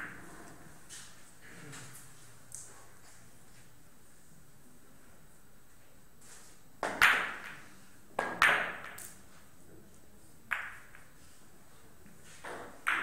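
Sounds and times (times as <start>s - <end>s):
billiard balls clacking: 12.5s - 13.0s.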